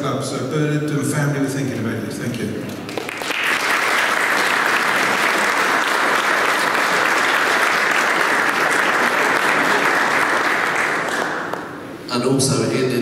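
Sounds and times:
audience applauding: 2.7s - 11.8s.

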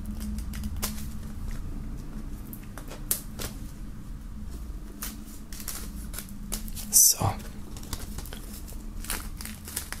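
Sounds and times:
steady low hum: 0.0s - 10.0s
plastic film crinkling: 4.5s - 10.0s.

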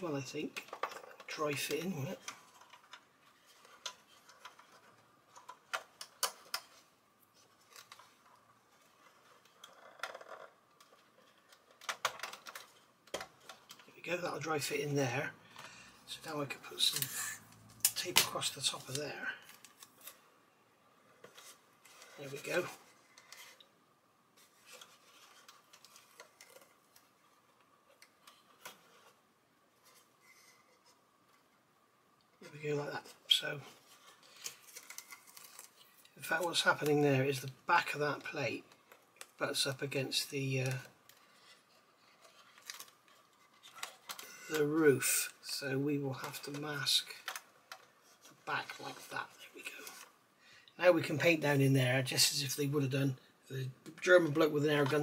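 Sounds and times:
paper rustling: 0.4s - 14.7s, 21.0s - 23.7s, 24.3s - 31.4s, 32.4s - 50.2s
plastic parts clicking and tapping: 0.5s - 14.0s, 40.6s - 45.4s, 46.2s - 48.8s.

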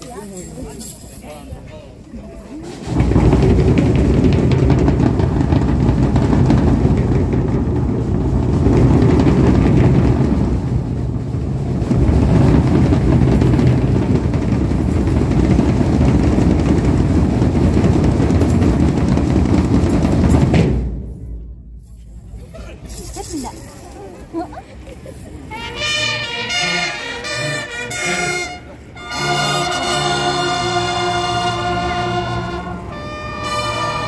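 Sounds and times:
marching drum band playing: 2.6s - 21.4s, 25.5s - 34.0s.

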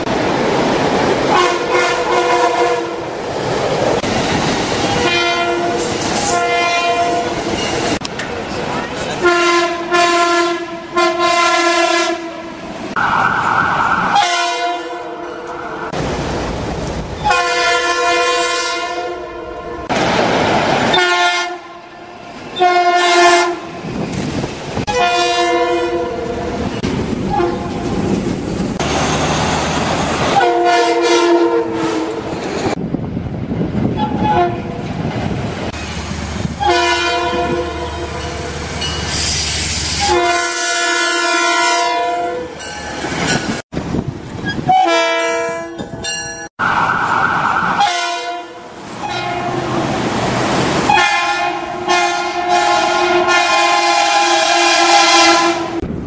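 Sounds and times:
train rumbling on tracks: 0.0s - 56.0s
train horn chord blasts: 1.3s - 3.0s, 5.0s - 7.3s, 9.2s - 12.5s, 14.1s - 15.6s, 17.2s - 19.9s, 21.0s - 21.9s, 22.6s - 23.7s, 24.9s - 26.3s, 30.4s - 32.2s, 36.6s - 38.5s, 40.0s - 42.5s, 47.8s - 49.7s, 50.9s - 55.8s.

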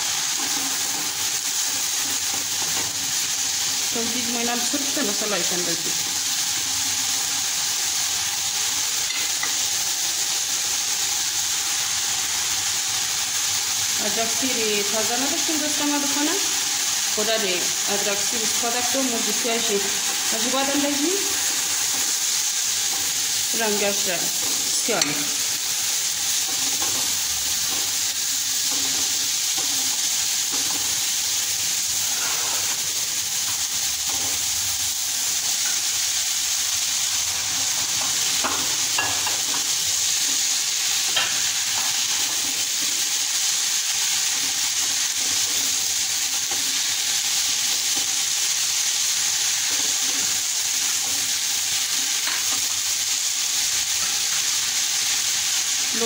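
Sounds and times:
vegetables sizzling in oil: 0.0s - 56.0s
spatula scraping a pot: 32.0s - 32.8s.

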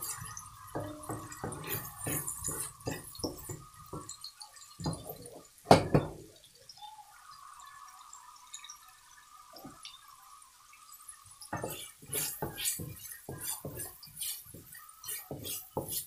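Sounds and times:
wooden spatula scraping a wok: 0.0s - 3.5s, 11.6s - 16.0s
faint sizzle: 0.0s - 16.0s.

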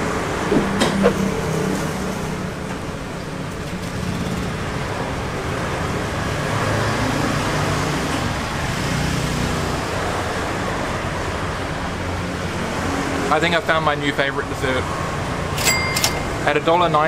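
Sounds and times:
passing vehicle engines humming: 0.0s - 17.0s
street traffic: 0.0s - 17.0s.

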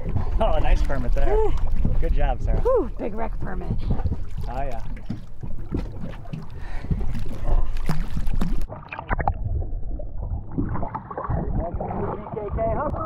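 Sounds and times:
muffled water sloshing: 0.0s - 13.0s
water splashing at boat side: 0.0s - 13.0s.

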